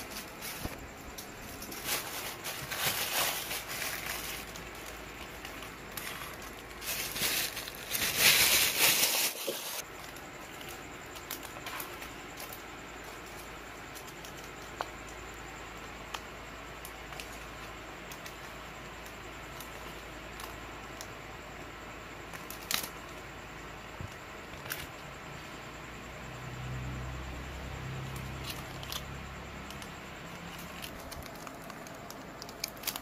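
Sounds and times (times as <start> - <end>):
plastic sleeves crinkling: 0.0 - 14.7, 29.7 - 33.0
steady hiss: 0.0 - 25.9.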